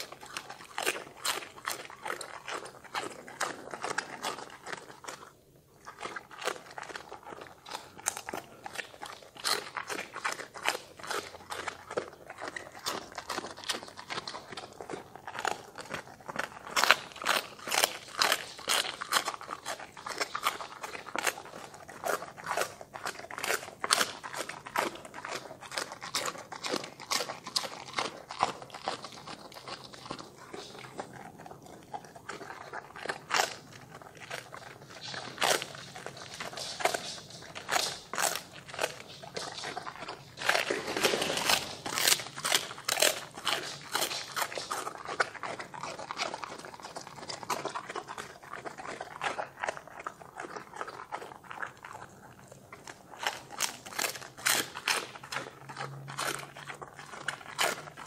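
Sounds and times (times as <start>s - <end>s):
dog crunching cabbage leaves: 0.0s - 58.0s.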